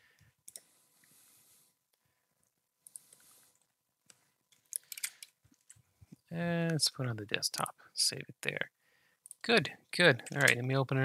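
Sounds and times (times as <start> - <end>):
computer mouse clicks: 0.4 - 0.7, 2.8 - 5.8.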